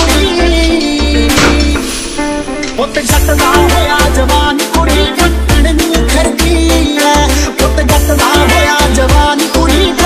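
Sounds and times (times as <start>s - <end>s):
music with pulsing bass beat: 0.0s - 10.0s.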